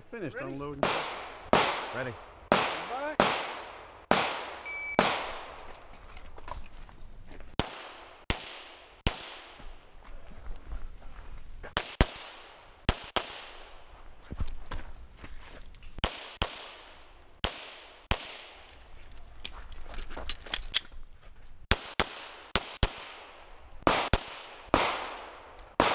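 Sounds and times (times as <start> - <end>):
pistol shots with echo: 0.8 - 5.6, 7.6 - 9.6, 16.0 - 18.6, 21.7 - 25.9.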